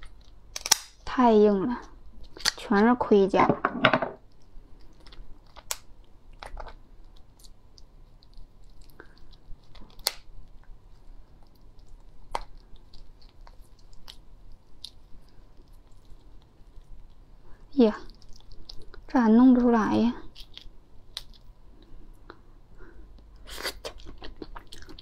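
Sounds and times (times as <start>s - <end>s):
lobster shell cracking: 0.0s - 1.1s, 2.2s - 2.8s, 4.2s - 10.5s, 20.3s - 21.5s.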